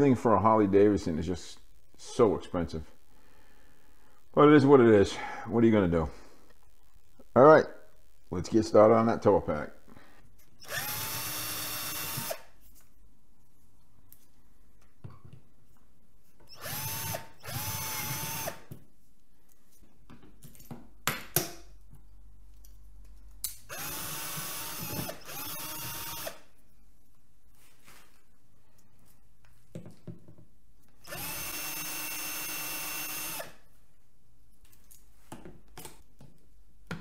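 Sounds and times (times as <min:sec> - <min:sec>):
power drill whining: 0:10.6 - 0:12.5, 0:16.5 - 0:18.6, 0:23.7 - 0:26.4, 0:31.0 - 0:33.5.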